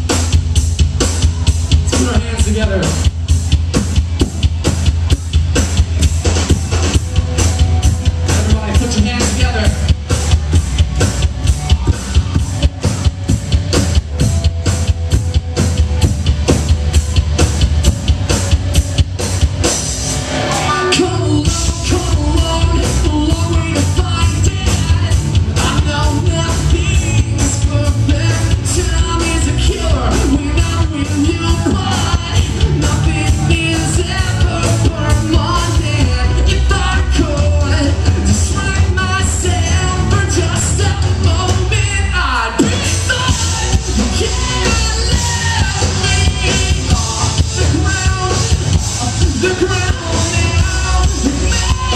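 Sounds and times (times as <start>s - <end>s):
bass guitar: 0.0s - 51.9s
drum kit beat: 0.0s - 51.9s
electric guitars: 0.0s - 51.9s
lead singer singing: 20.4s - 51.9s.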